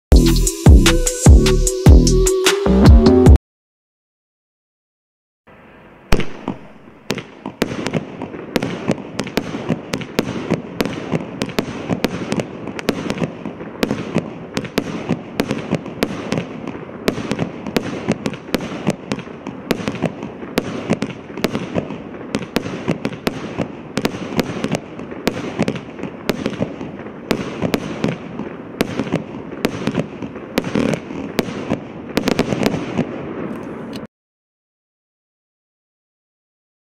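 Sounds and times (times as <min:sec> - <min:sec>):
firework bangs: 0:05.5 - 0:34.1.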